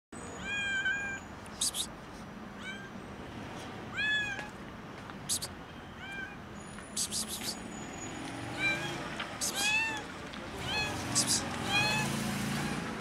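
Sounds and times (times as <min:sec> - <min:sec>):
kitten meowing loudly: 0:00.4 - 0:01.2, 0:03.9 - 0:04.5, 0:08.6 - 0:10.0, 0:10.6 - 0:12.8
brief high hissy noises: 0:01.6 - 0:01.9, 0:06.9 - 0:07.7.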